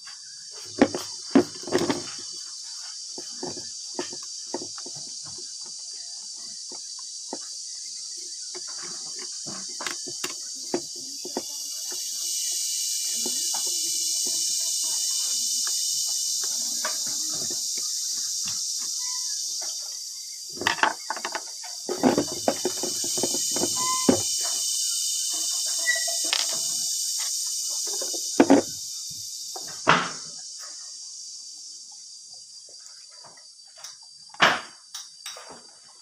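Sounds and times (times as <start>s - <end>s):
insect chorus: 0.0s - 36.0s.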